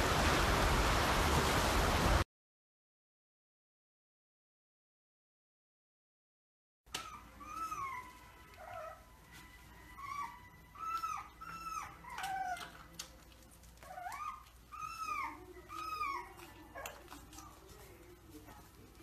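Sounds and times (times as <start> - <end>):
puppy yelping whines: 6.9 - 17.6.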